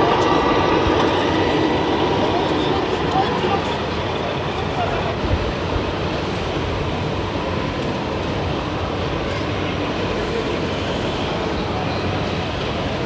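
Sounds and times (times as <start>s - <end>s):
hall noise: 0.0s - 6.3s
crowd chatter: 0.0s - 13.0s.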